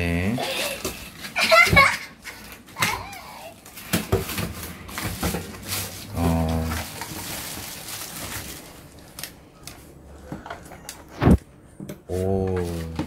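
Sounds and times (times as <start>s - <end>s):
plastic wrapping crinkling: 0.6s - 9.9s.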